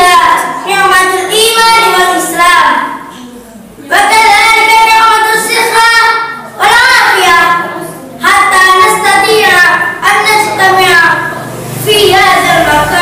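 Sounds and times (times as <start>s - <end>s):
boy chanting melodically: 3.8s - 13.0s.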